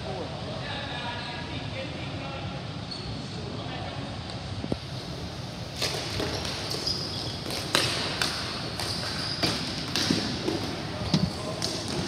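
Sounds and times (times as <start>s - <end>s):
murmur of room noise: 0.0s - 12.0s
hockey sticks and ball clacking: 5.7s - 12.0s.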